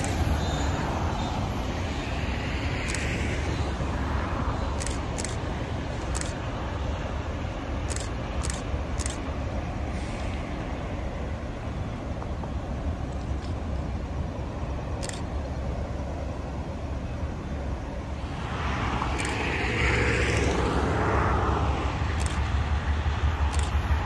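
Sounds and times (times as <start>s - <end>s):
diesel locomotive rumble: 0.0s - 24.0s.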